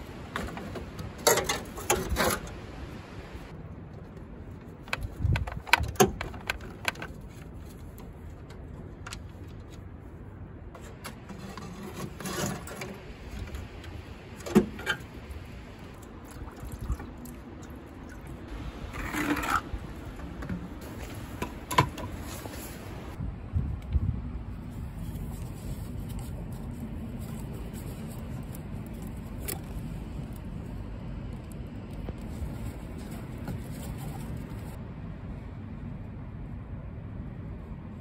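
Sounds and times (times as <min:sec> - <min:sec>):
short metal scrapes: 0:10.8 - 0:13.3.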